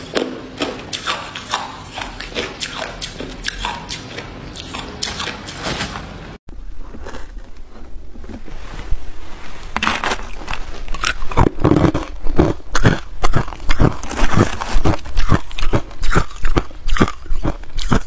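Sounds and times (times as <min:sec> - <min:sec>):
crushed ice crunching: 0:13.7 - 0:15.6.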